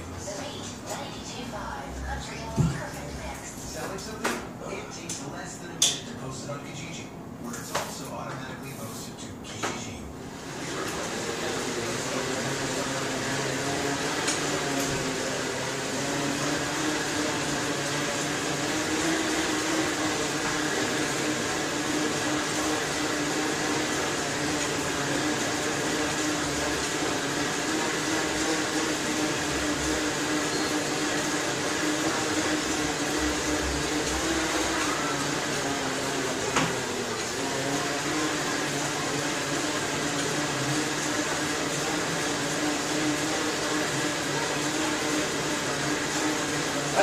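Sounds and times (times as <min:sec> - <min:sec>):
bicycle rollers whirring: 0:10.2 - 0:47.0.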